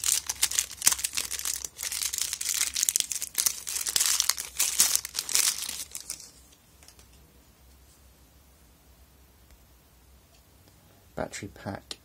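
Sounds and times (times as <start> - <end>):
plastic wrapper crackling: 0.0 - 7.0.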